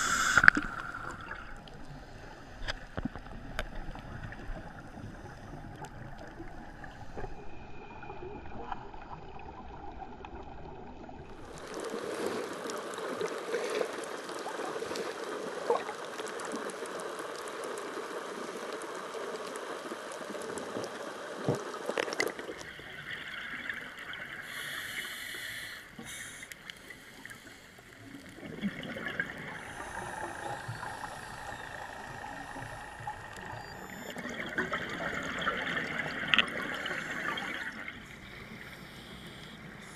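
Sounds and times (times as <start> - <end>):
bright underwater hiss: 0.0 - 2.4, 22.6 - 34.2, 36.8 - 39.9
muffled underwater water movement: 0.0 - 39.9.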